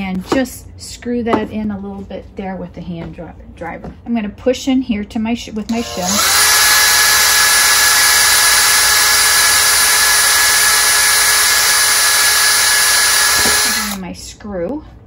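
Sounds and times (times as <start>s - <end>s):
cordless drill boring into wood: 5.7s - 14.0s.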